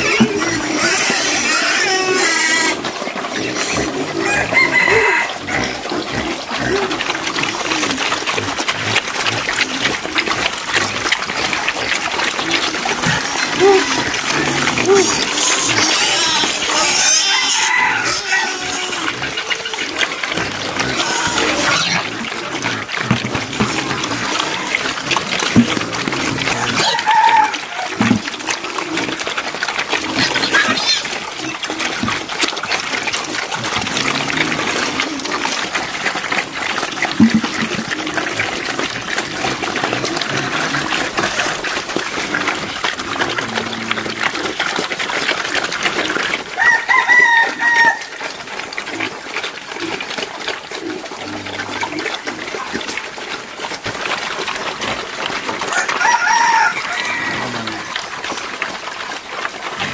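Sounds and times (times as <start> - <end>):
chickens clucking: 0.0 - 59.9
pigs munching: 0.0 - 59.9
rooster crowing: 4.2 - 5.5, 17.1 - 18.9, 26.8 - 27.9, 46.6 - 48.2, 55.7 - 57.9.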